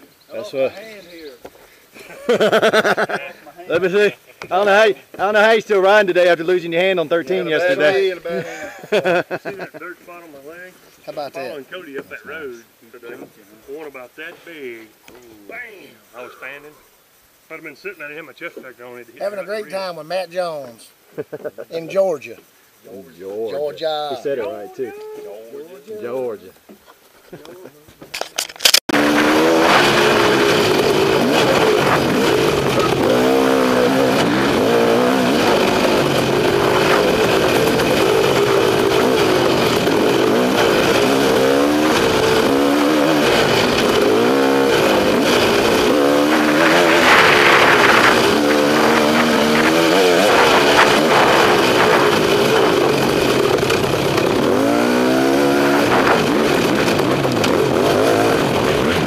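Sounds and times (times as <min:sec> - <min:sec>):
motorcycle engine revving: 0:28.9 - 0:59.0
wind noise: 0:28.9 - 0:59.0.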